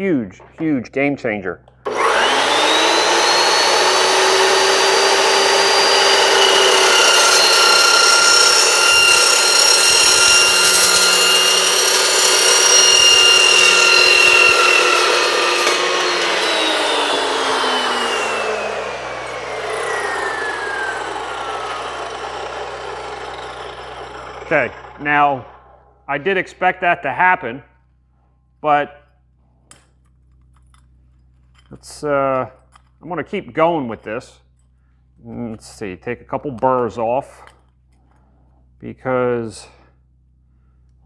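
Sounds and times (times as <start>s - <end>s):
saw motor winding down: 1.8s - 26.1s
chop saw cutting metal pipe: 1.9s - 25.9s.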